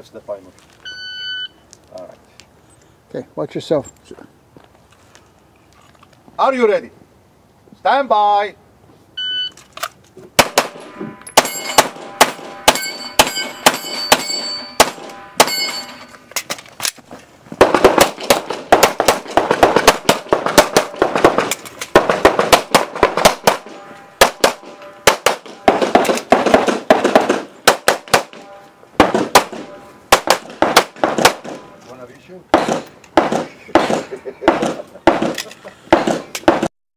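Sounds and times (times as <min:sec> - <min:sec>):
shot timer beep: 0:09.2 - 0:09.6
handgun shots: 0:10.4 - 0:15.7, 0:17.6 - 0:31.7, 0:32.5 - 0:36.7
steel targets ringing: 0:10.7 - 0:16.3, 0:23.4 - 0:26.3, 0:29.4 - 0:30.2.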